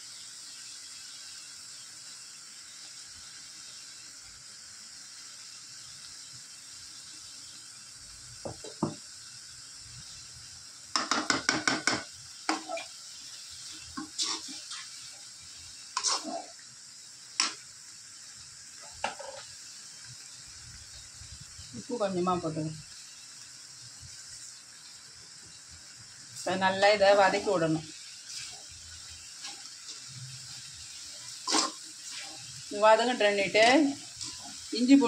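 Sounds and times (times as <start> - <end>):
chicken frying in oil: 0.0 - 35.0
spatula scraping metal pan: 14.0 - 15.0, 16.0 - 16.5, 31.2 - 32.5.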